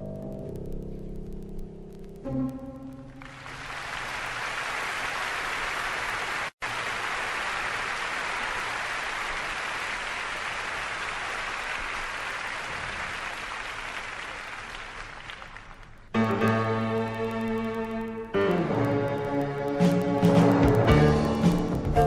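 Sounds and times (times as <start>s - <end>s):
audience applauding: 3.1s - 16.8s.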